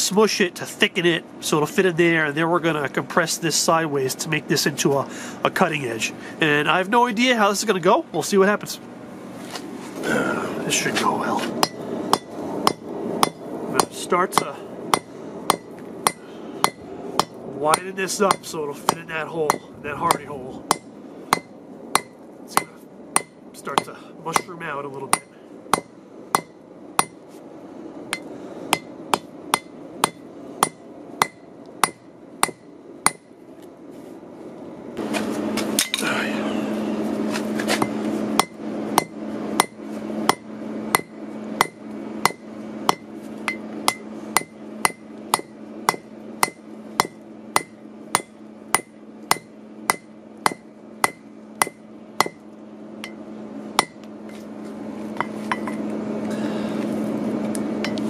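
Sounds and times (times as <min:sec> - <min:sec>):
loud steady hum: 0:00.0 - 0:58.0
hammer striking on anvil: 0:11.6 - 0:27.2, 0:28.1 - 0:33.3, 0:37.8 - 0:52.4, 0:53.8 - 0:54.0.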